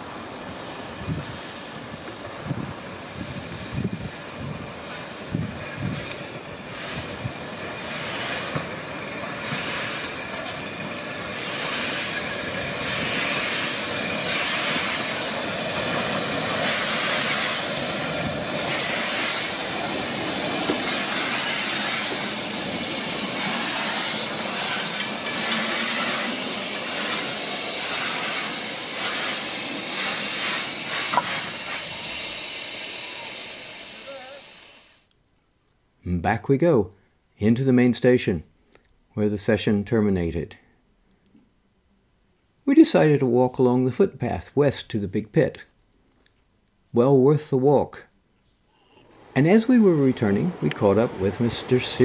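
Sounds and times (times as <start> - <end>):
steam locomotive exhaust beats: 0.0 - 35.0, 49.1 - 52.0
loud hiss of escaping steam: 0.0 - 35.1, 48.8 - 52.0.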